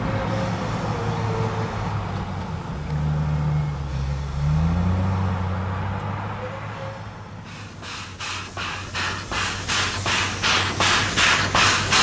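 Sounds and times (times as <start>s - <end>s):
steam locomotive chuffing: 7.4s - 12.0s.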